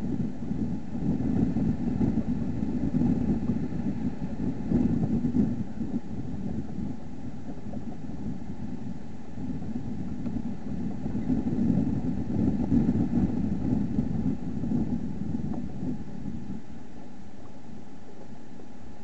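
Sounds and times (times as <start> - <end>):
low background rumble: 0.0 - 19.0.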